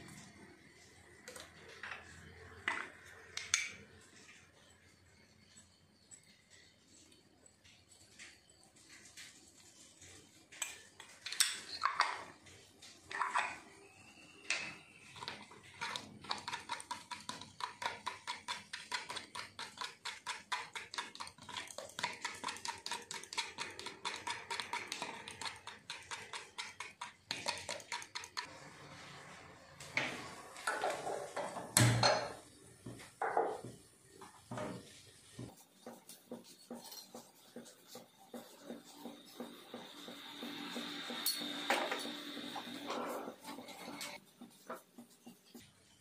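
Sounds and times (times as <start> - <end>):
fork beating eggs in cup: 14.4 - 28.5, 35.5 - 45.7
kitchenware knocks: 30.7 - 32.4.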